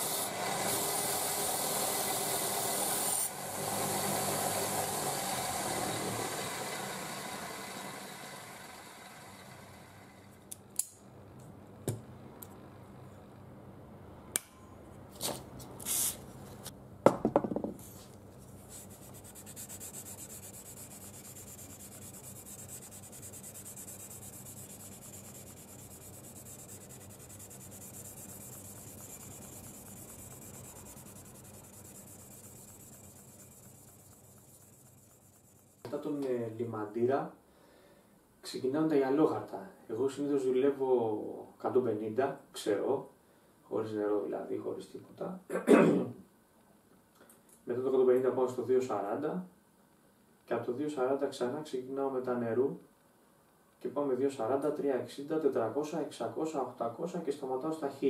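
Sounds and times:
bench grinder motor winding down: 0.0s - 10.3s, 19.5s - 34.8s
file scraping steel blade: 18.8s - 35.9s.

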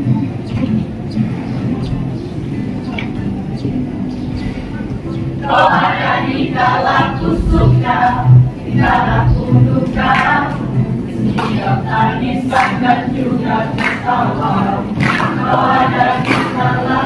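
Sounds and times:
acoustic guitar: 0.0s - 17.0s
children's choir singing: 5.4s - 17.0s.

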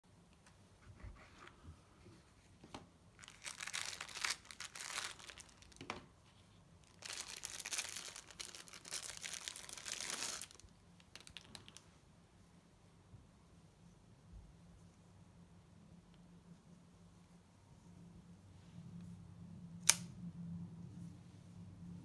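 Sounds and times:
plastic wrapping crinkling: 3.2s - 6.1s, 6.8s - 11.8s.

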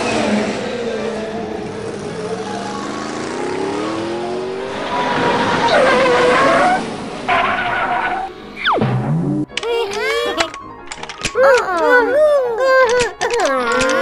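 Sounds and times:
race car engine revving: 0.0s - 9.4s
tire squeal: 4.6s - 8.6s.

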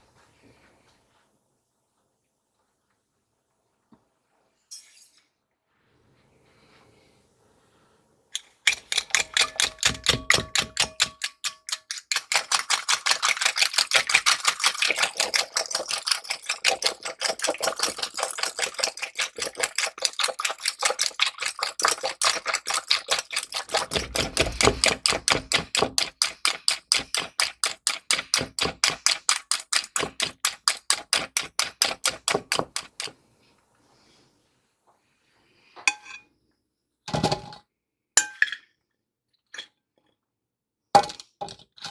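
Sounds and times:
whisk clicking against bowl: 8.4s - 33.2s.

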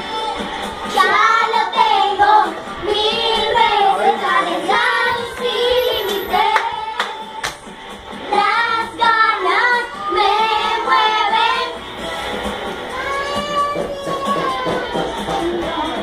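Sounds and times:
girls singing excitedly: 0.0s - 7.5s, 8.2s - 11.8s
sharp claps: 6.1s - 7.8s.

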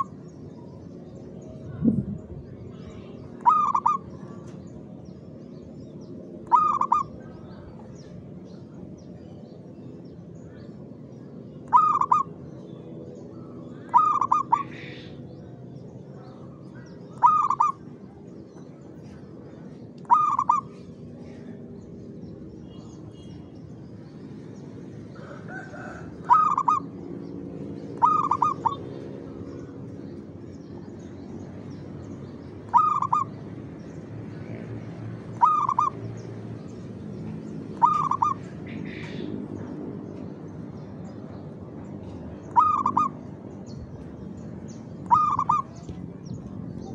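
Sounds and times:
dove cooing: 3.3s - 4.5s, 6.4s - 7.6s, 11.7s - 12.3s, 13.9s - 15.2s, 17.1s - 17.8s, 20.0s - 21.4s, 25.2s - 27.2s, 27.9s - 29.0s, 32.7s - 33.4s, 35.4s - 36.0s, 37.7s - 39.3s, 42.5s - 43.2s, 45.0s - 45.8s.

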